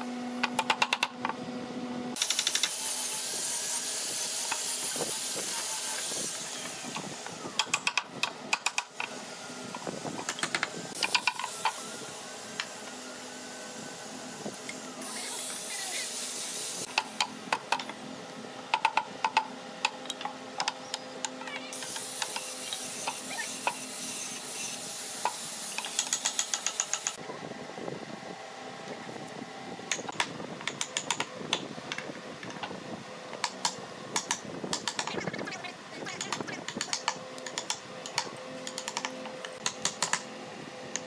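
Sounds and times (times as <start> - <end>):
workshop machine hum: 0.0 - 41.0
wooden parts knocking and clicking: 18.7 - 20.8, 33.4 - 35.2.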